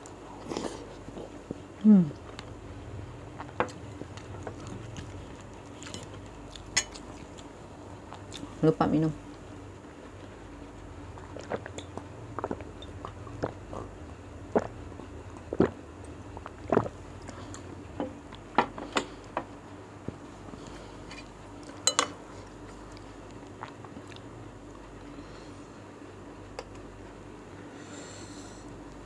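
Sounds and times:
chewing and swallowing: 3.3s - 8.6s, 10.1s - 18.5s, 20.5s - 25.0s.

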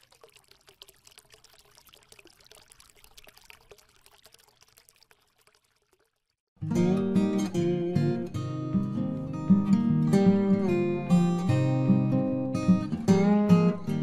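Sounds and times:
water trickling and splashing: 0.0s - 6.5s
strummed acoustic guitar: 6.6s - 14.0s.

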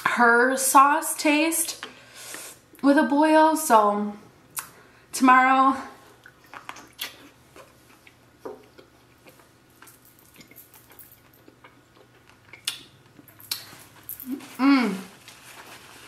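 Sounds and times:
chewing and shellfish handling: 6.2s - 14.6s.

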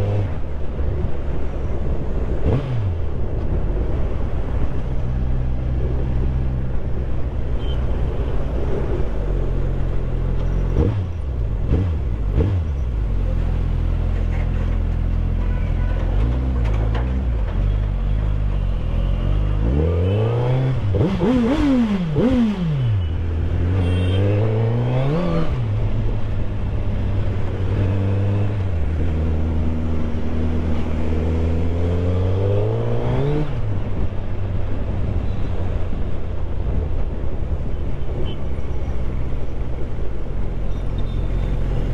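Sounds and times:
motorcycle engine revving: 19.6s - 25.8s.

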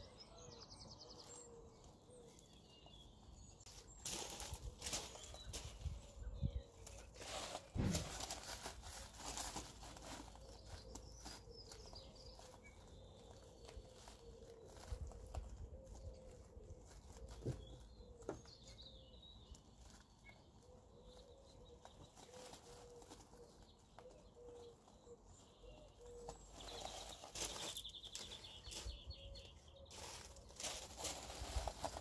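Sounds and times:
rustling rubbing noise: 6.9s - 18.2s, 29.9s - 32.0s.

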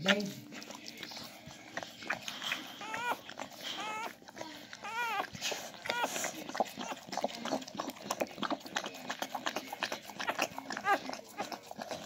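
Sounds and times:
puppy squeaking: 2.5s - 7.0s, 10.2s - 11.6s.

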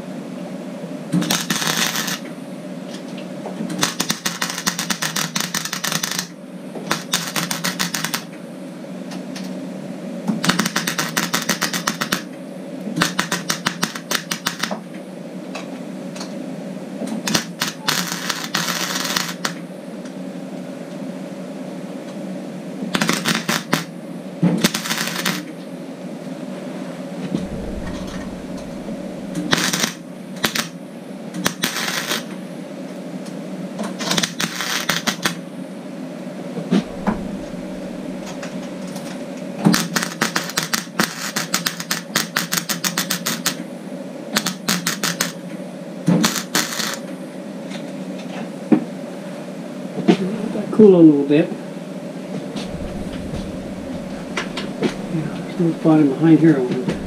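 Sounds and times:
steady low hum: 27.3s - 31.4s, 36.3s - 39.6s, 52.4s - 57.0s.

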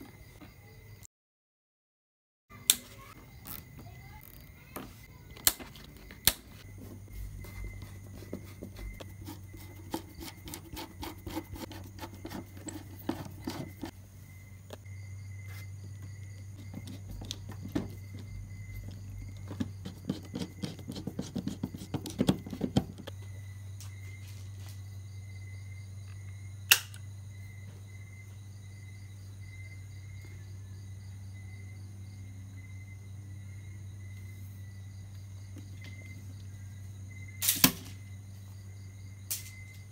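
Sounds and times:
low electrical hum: 2.6s - 39.9s
handling clicks and scraping: 2.8s - 14.0s, 15.5s - 23.2s
sharp clicks: 26.7s - 27.0s.

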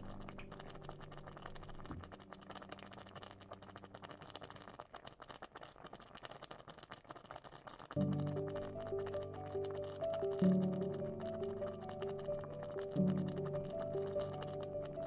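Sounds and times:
curry bubbling in a pan: 0.0s - 15.0s.

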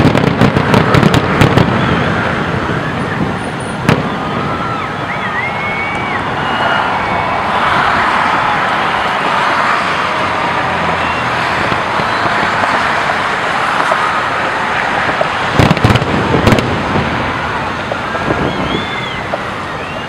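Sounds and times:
crowd and city background noise: 0.0s - 20.0s
firework shells bursting: 15.0s - 17.1s.

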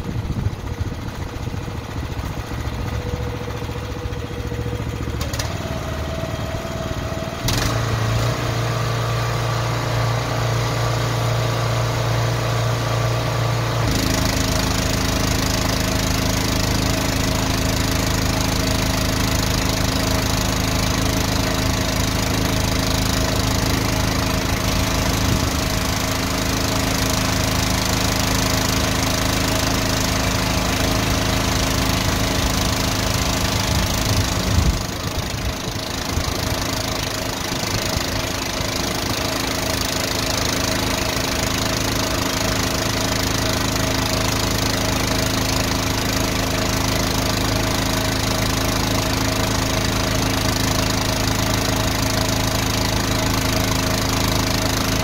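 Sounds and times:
engine running under load: 0.0s - 55.0s.

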